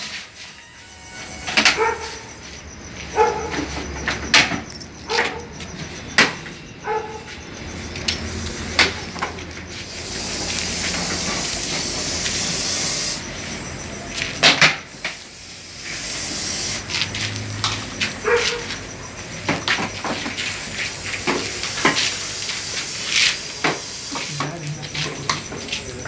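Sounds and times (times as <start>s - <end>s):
snake hissing: 9.8s - 13.7s, 15.2s - 17.2s.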